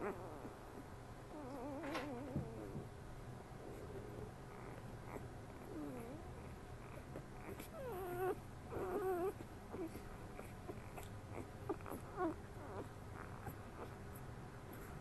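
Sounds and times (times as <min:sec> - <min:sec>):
puppies whimpering: 0:04.1 - 0:14.1.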